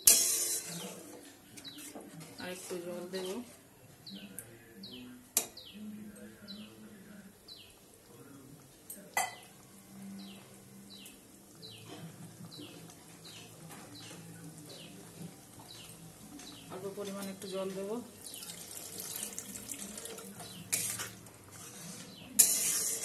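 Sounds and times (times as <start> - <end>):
bird chirping: 10.2 - 15.0.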